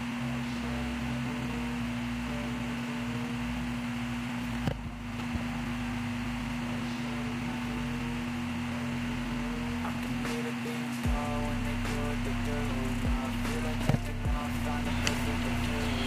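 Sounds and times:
steady low hum: 0.0s - 16.0s
even hiss: 9.7s - 16.0s.

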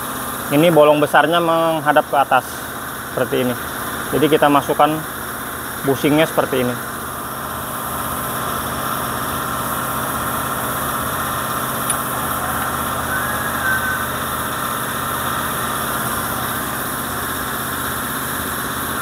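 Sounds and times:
engine idling: 0.0s - 19.0s
brief high squeaks: 13.1s - 14.1s.

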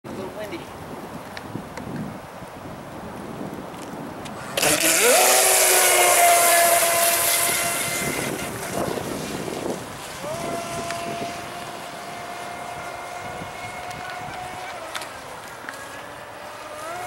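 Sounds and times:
rush of spray: 4.3s - 17.0s
rc boat motor whine: 4.4s - 17.0s.

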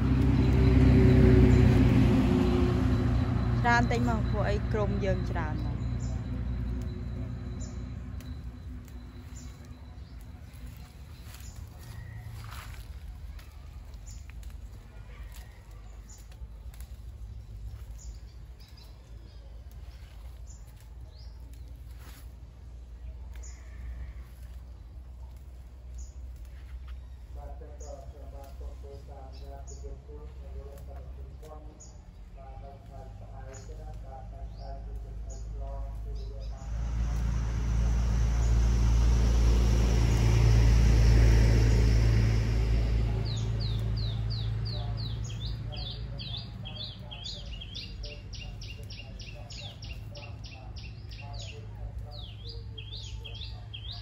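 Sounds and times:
steady low rumble: 0.0s - 54.0s.

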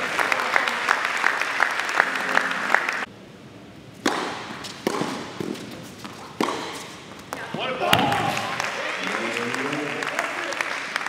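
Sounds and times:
applause: 0.0s - 3.1s, 8.2s - 11.0s
racket striking tennis ball: 4.0s - 8.2s.

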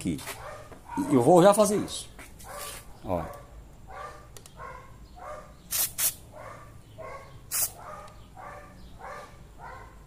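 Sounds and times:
dog barking: 0.3s - 1.4s, 2.4s - 5.6s, 6.3s - 10.0s
aerosol spray hisses: 5.7s - 6.2s, 7.5s - 7.8s.

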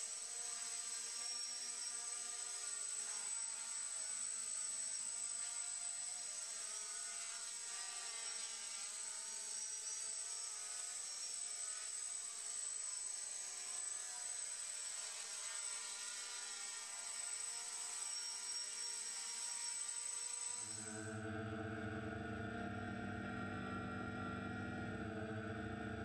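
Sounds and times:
drone motors buzzing: 18.9s - 26.0s
steady high whine: 20.2s - 26.0s.

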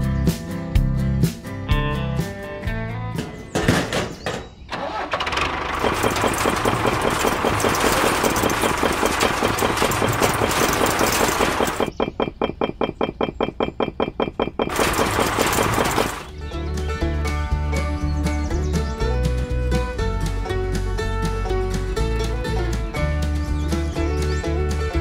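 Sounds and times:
tractor engine starting and running: 4.2s - 17.8s.

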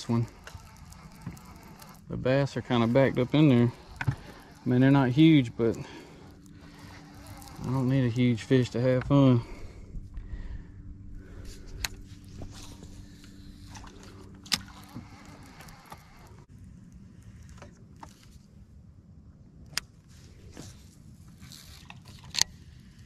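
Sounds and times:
fishing gear clicks and knocks: 0.0s - 9.3s, 11.5s - 16.5s, 19.7s - 22.6s
boat motor humming: 0.0s - 18.6s.

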